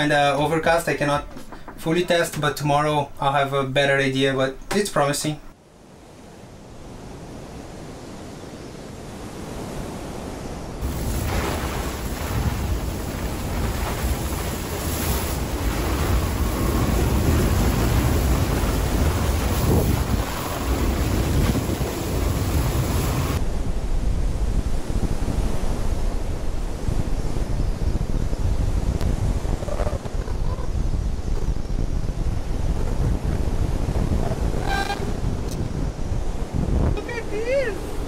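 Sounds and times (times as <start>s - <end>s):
wind buffeting microphone: 6.9s - 38.0s
rough water rushing: 9.4s - 23.5s, 33.2s - 38.0s.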